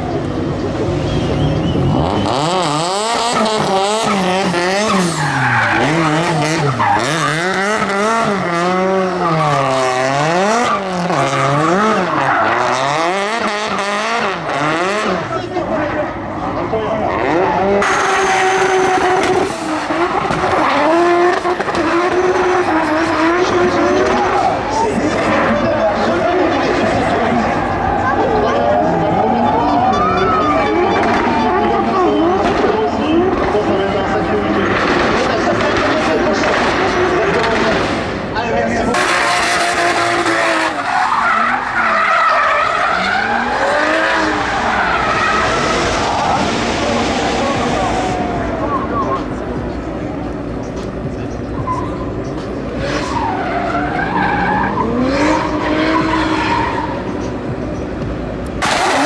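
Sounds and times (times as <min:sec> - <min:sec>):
car engine revving high: 0:01.0 - 0:59.0
tyres screeching: 0:01.4 - 0:08.5, 0:50.5 - 0:59.0.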